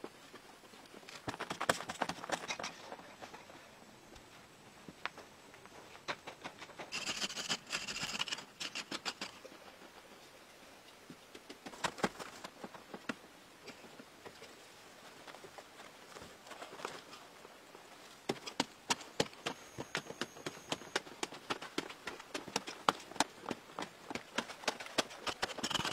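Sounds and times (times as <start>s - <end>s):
dry soil scraped by hand: 6.8s - 9.4s, 25.0s - 25.9s.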